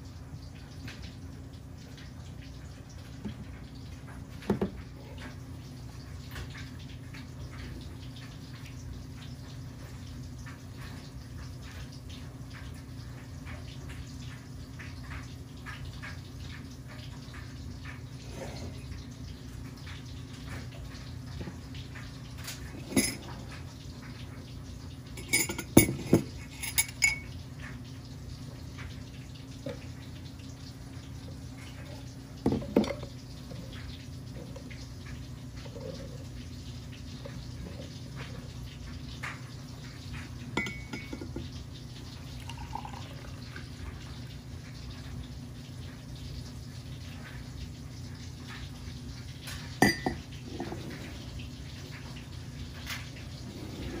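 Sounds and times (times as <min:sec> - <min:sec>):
coffee pouring: 0:14.8 - 0:47.4, 0:48.0 - 0:54.0
glass and mug clinking: 0:22.8 - 0:23.3, 0:25.2 - 0:27.3, 0:40.6 - 0:41.4, 0:49.8 - 0:50.7.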